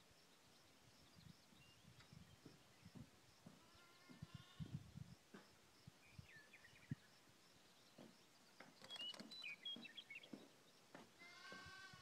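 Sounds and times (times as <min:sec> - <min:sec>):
nasal bleat-like call: 0:03.6 - 0:04.7, 0:11.2 - 0:12.0
faint bird chirps: 0:05.9 - 0:10.8.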